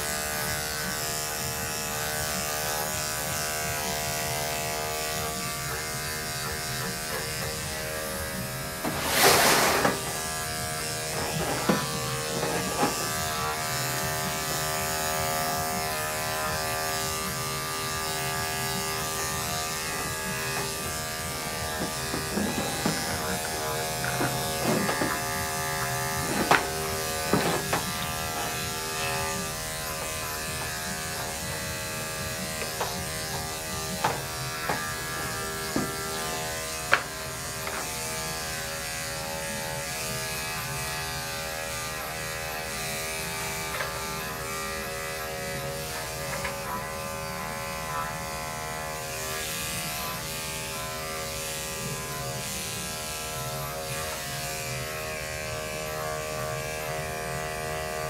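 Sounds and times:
electric clippers humming: 0.0s - 58.0s.

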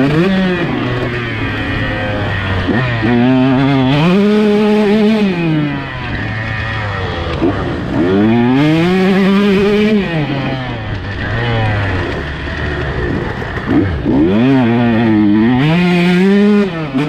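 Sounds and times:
motocross bike engine revving: 0.0s - 17.0s.

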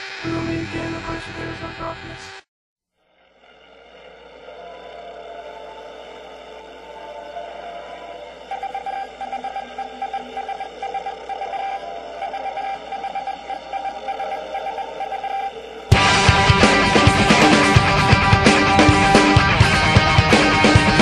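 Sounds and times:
pulsing synth note: 3.0s - 21.0s
held synth tones: 3.3s - 21.0s
loud rock music: 15.9s - 21.0s.

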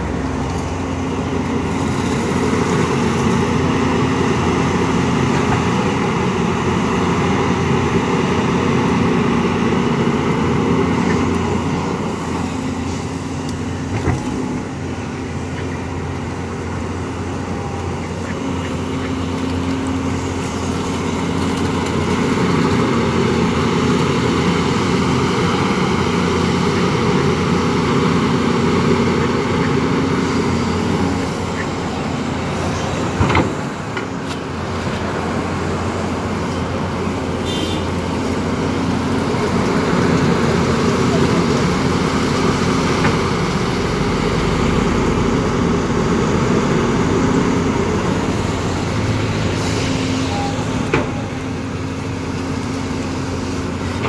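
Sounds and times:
excavator diesel engine: 0.0s - 54.0s.

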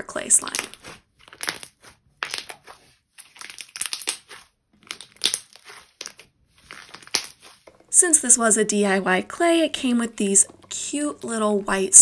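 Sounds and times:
slime squelching and crackling: 0.0s - 8.4s.

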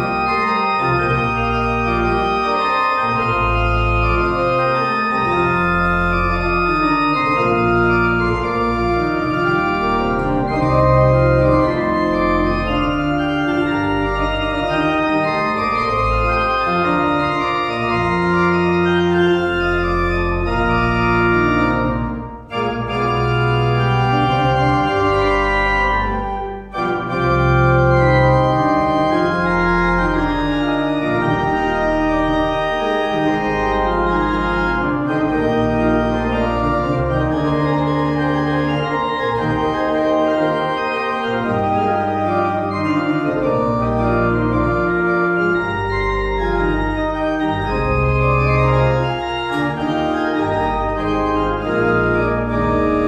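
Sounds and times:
pipe organ chords: 0.0s - 53.0s.

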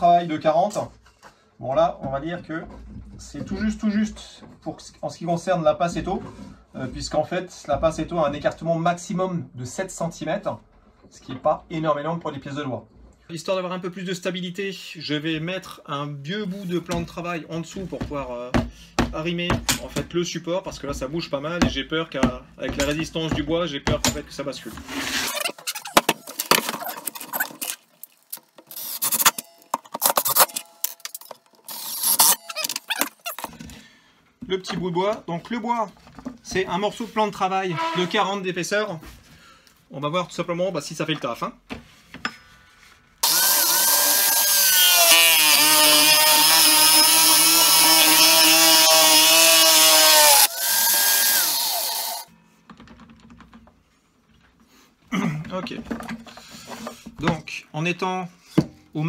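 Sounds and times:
cordless drill whirring: 43.2s - 52.3s.

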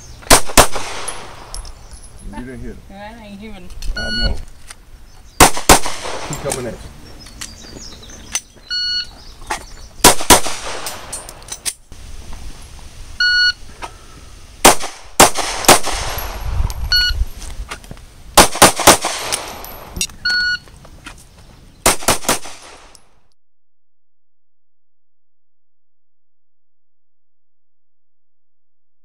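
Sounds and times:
handgun shots: 0.3s - 1.6s, 5.4s - 6.7s, 10.0s - 11.7s, 14.6s - 16.4s, 18.4s - 20.0s, 21.9s - 23.0s
shot timer beep: 16.9s - 17.2s.

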